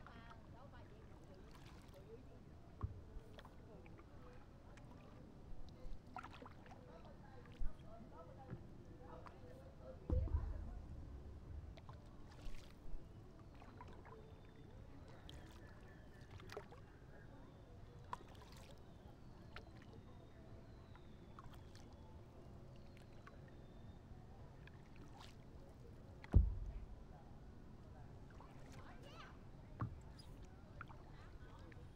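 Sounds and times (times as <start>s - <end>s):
paddle strokes in water: 11.8s - 14.2s, 18.0s - 18.9s, 21.4s - 22.0s, 24.6s - 27.2s, 28.2s - 29.1s
small splashes: 24.8s - 27.1s
sharp thump: 26.3s - 27.0s.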